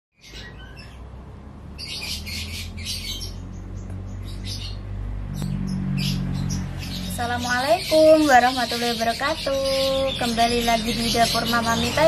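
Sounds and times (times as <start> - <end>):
birds chirping: 0.2 - 12.0.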